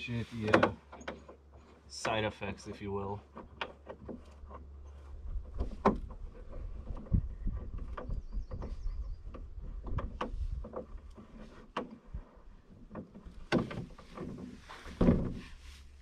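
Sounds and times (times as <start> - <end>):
hollow knocks in a canoe: 0.4 - 15.7
heavy thumps in a canoe: 5.2 - 15.8.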